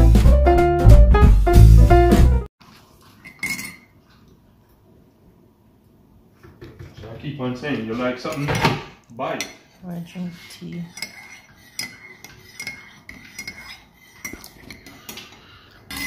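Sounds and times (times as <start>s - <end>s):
cutlery and dishes clinking: 3.2s - 4.0s, 7.9s - 16.0s.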